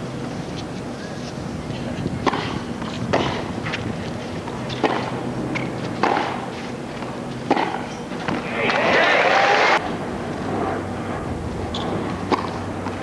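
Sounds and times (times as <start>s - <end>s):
tennis ball hit by racket: 2.2s - 3.5s, 4.8s - 6.4s, 7.5s - 8.8s, 12.3s - 12.6s.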